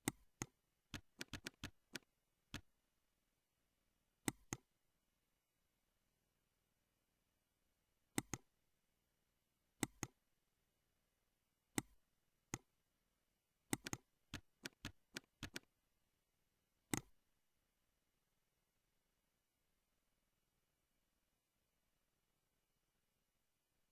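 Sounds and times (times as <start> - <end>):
computer mouse clicks: 0.0 - 2.7, 4.2 - 4.7, 8.1 - 8.5, 9.8 - 10.2, 11.8 - 12.7, 13.7 - 15.7, 16.9 - 17.2
keyboard keystrokes: 0.0 - 2.7, 13.7 - 15.7.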